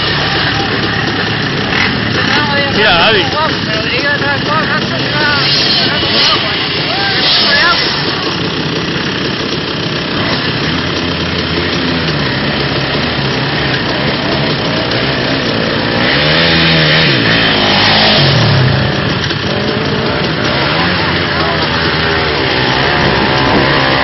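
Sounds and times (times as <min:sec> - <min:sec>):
quad bike engines revving: 0:00.0 - 0:24.0.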